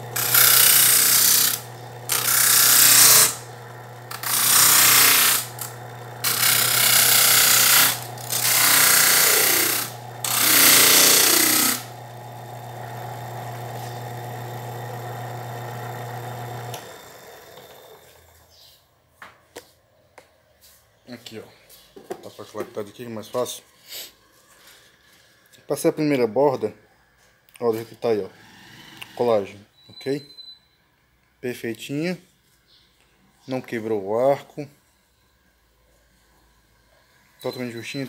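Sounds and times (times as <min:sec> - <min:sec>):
wood grinding against sanding disc: 0:00.0 - 0:18.4
disc sander humming: 0:00.0 - 0:18.6.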